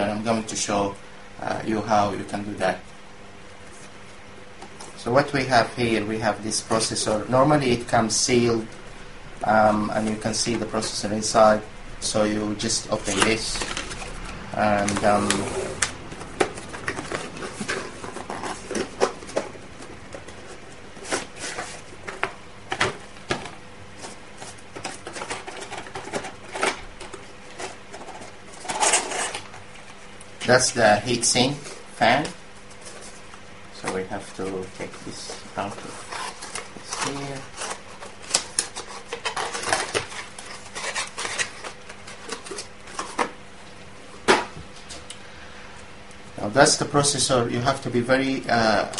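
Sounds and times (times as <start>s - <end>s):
cardboard rustling and scraping: 9.5s - 43.4s
cardboard box rustling and scraping: 13.0s - 22.3s.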